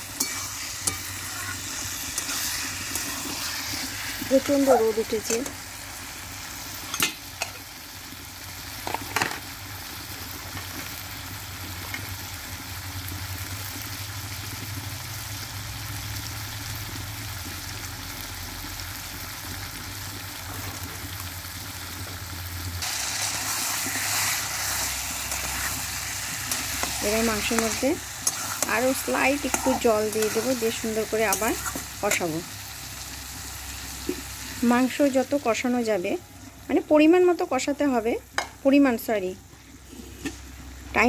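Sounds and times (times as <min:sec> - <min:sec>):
metal spatula stirring meat: 0:00.0 - 0:04.3, 0:22.9 - 0:32.3
meat and onions sizzling in a pan: 0:00.0 - 0:41.0.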